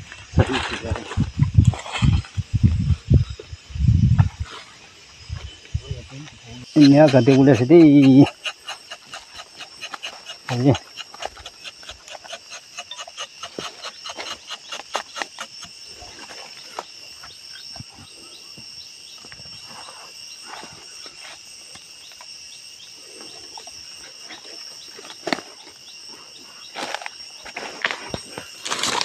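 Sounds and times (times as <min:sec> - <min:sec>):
high insect chorus: 0:00.0 - 0:29.0
knife scraping bark: 0:06.6 - 0:16.8.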